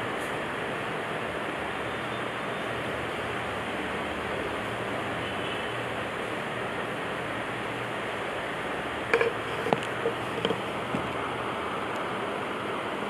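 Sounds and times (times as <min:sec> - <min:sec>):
short knocks and clicks: 0:09.1 - 0:11.1.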